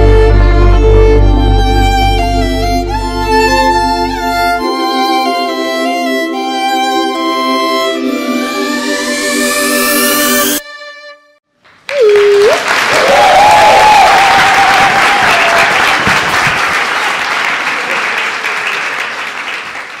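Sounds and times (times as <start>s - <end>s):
audience applauding: 11.6s - 20.0s
voices shouting cheers: 12.9s - 15.8s.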